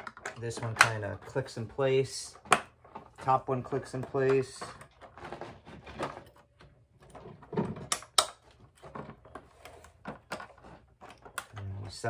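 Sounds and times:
plastic pieces knocking together: 0:00.0 - 0:01.6.

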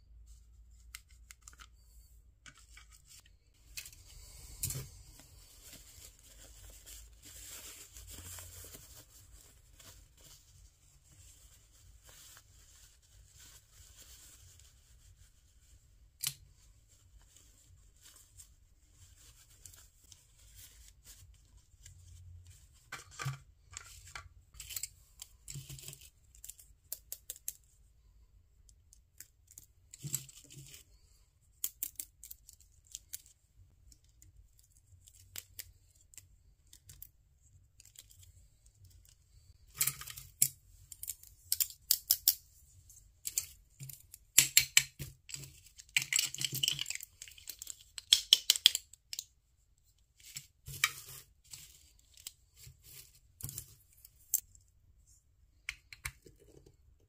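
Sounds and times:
plastic toys clicking and rattling: 0:43.2 - 0:49.3.

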